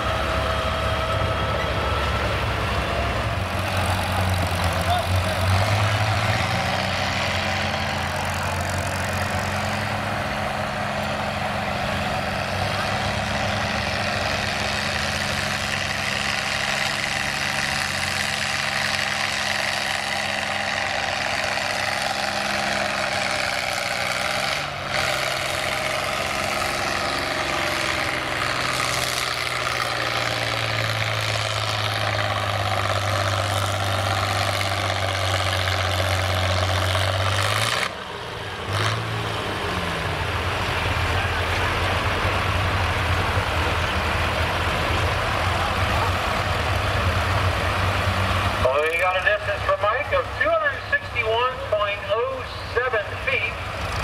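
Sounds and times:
tractor diesel engines running: 0:00.0 - 0:54.0.

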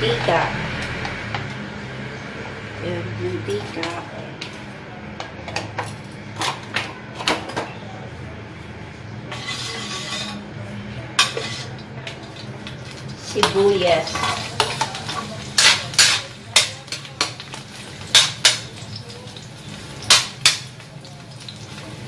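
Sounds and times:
oil frying sizzle: 0:00.0 - 0:06.8, 0:11.1 - 0:22.0
metal spatula scraping a wok: 0:09.3 - 0:10.5, 0:11.2 - 0:11.8, 0:13.4 - 0:18.6.

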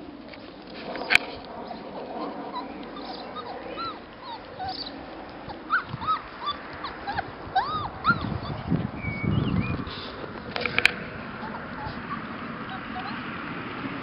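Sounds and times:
puppies smacking while eating: 0:00.2 - 0:08.3
puppies whimpering: 0:01.6 - 0:10.3, 0:11.2 - 0:13.3.

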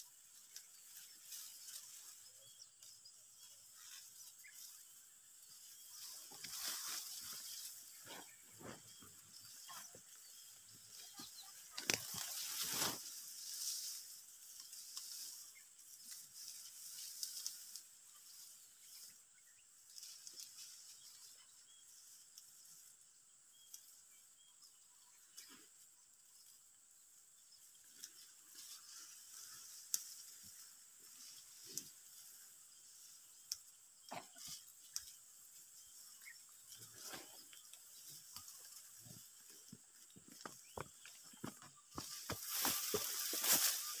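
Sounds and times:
rustling: 0:03.7 - 0:19.1, 0:34.4 - 0:44.0.

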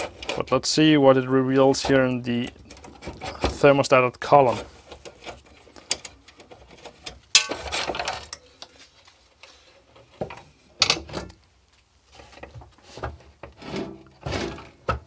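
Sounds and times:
metal cover clattering: 0:07.3 - 0:08.4.

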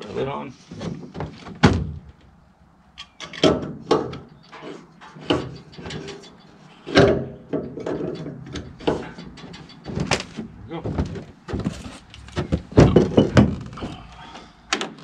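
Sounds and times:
tools knocking and rattling: 0:03.0 - 0:13.8.

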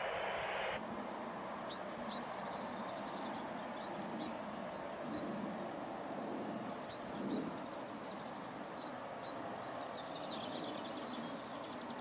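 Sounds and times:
loud hiss: 0:00.0 - 0:00.8.

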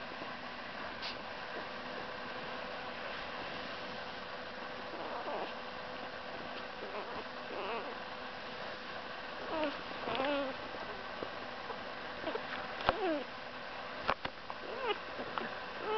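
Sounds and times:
puppy squeaking and whimpering: 0:05.0 - 0:05.6, 0:06.8 - 0:08.0, 0:09.4 - 0:10.6, 0:12.2 - 0:13.3, 0:14.7 - 0:15.0.

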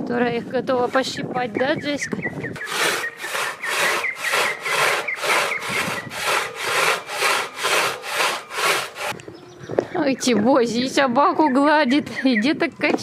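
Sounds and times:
hand saw cutting wood: 0:00.3 - 0:01.8, 0:02.5 - 0:09.2.

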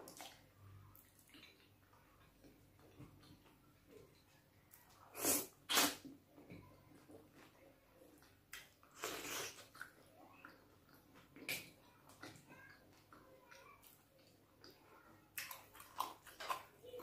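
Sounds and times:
sharp slurps of eating soup: 0:05.1 - 0:06.1.

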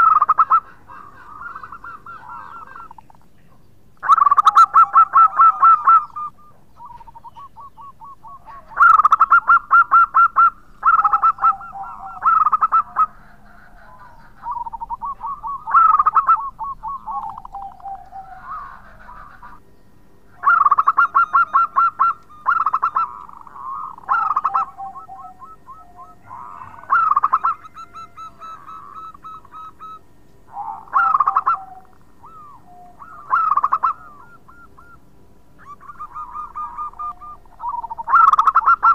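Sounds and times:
dove cooing: 0:00.0 - 0:38.9.

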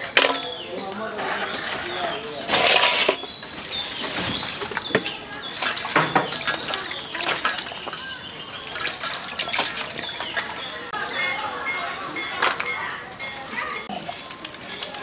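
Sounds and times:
birds chirping faintly: 0:00.0 - 0:15.0
water splashing and sloshing: 0:01.1 - 0:11.1
water pouring into steel bowl: 0:05.6 - 0:10.9.

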